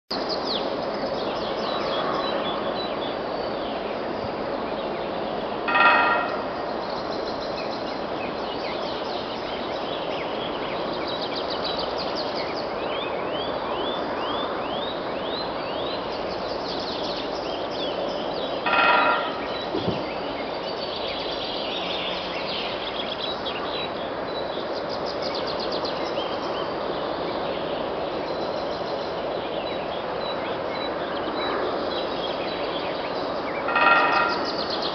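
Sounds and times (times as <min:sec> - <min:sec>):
woodpecker drumming on metal: 0:05.7 - 0:06.6, 0:18.7 - 0:19.5, 0:33.7 - 0:34.7.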